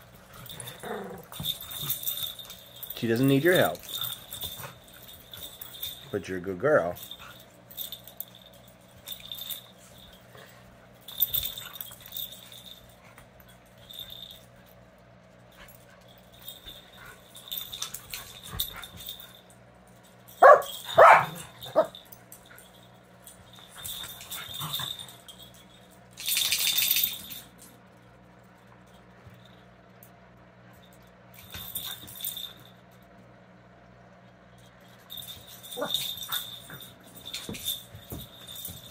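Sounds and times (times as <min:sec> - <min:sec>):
puppy yapping: 0:20.4 - 0:21.9
puppies scuffling: 0:34.8 - 0:38.9.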